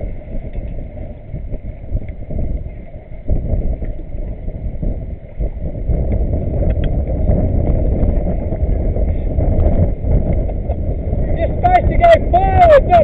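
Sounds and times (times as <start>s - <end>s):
water rushing and slapping: 0.0s - 13.0s
wind on microphone: 0.0s - 13.0s.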